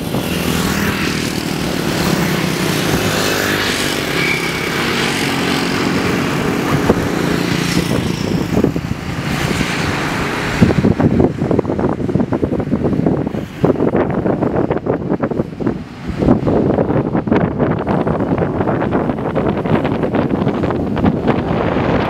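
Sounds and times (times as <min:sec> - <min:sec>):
vehicle engine humming: 0:00.0 - 0:16.1
wind buffeting microphone: 0:00.0 - 0:22.0.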